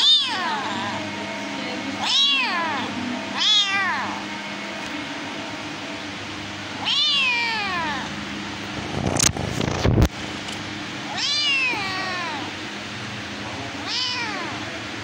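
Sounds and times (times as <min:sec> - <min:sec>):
cat meowing: 0:00.0 - 0:01.0, 0:02.0 - 0:04.2, 0:06.8 - 0:08.1, 0:11.1 - 0:12.5, 0:13.8 - 0:14.6.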